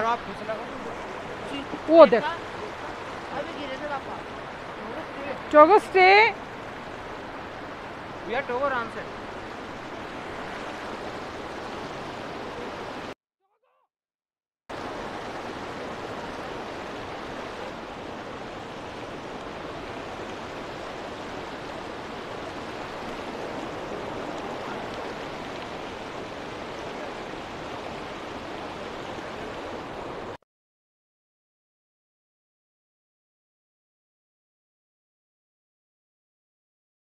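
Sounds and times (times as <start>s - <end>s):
stream rushing over boulders: 0.0s - 13.2s, 14.7s - 30.4s.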